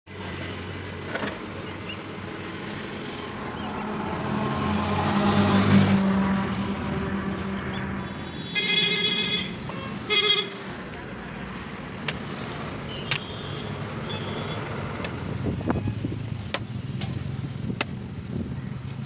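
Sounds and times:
vehicle engine passing: 2.4s - 8.0s
vehicle horn: 8.0s - 10.6s.

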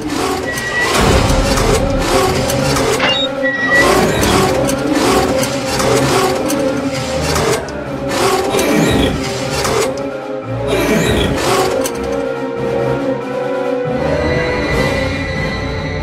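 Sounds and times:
mechanical whirring and clattering: 0.0s - 10.2s, 10.9s - 12.4s.

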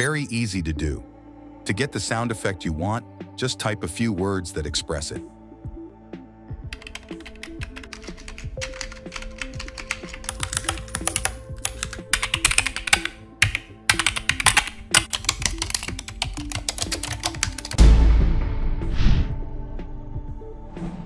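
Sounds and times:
soft background music: 0.0s - 21.0s
keyboard typing: 6.7s - 17.8s.

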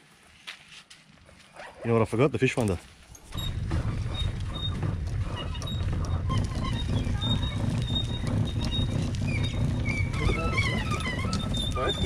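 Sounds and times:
cart wheels rolling on asphalt: 0.0s - 12.0s
gear rattling: 3.2s - 12.0s.

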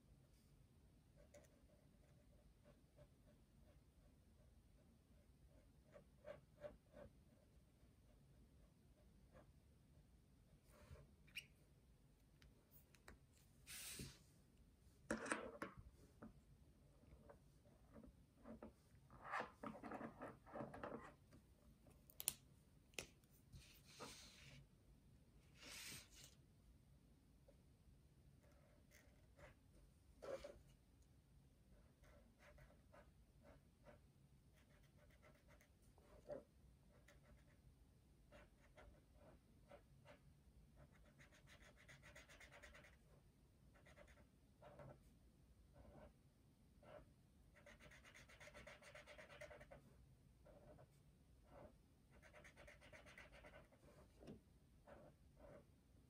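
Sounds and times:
marker scratching on paper: 28.4s - 29.6s, 30.2s - 30.7s, 32.0s - 34.0s, 34.6s - 37.6s, 38.3s - 40.2s, 40.8s - 43.1s, 43.8s - 45.0s, 45.8s - 46.1s, 46.8s - 49.8s, 50.4s - 54.2s
marker tip scratching paper: 47.6s - 49.8s, 52.1s - 53.8s.

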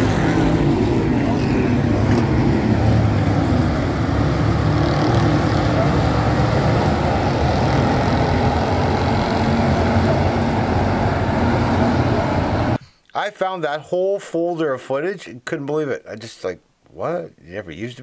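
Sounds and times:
racing car engines: 0.0s - 12.8s.

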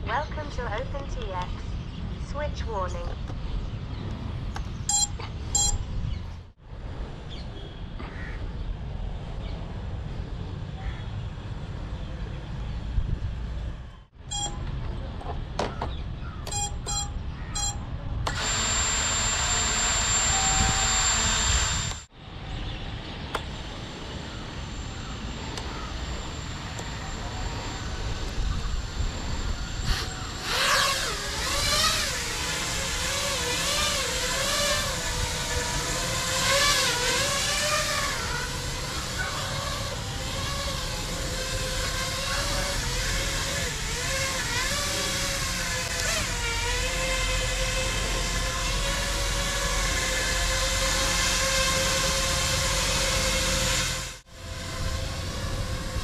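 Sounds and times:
short electronic beeps: 4.9s - 5.9s, 14.3s - 14.6s, 16.5s - 17.9s
drone motors humming while hovering: 16.3s - 56.0s
drone motors whirring: 16.4s - 22.1s, 22.8s - 56.0s.

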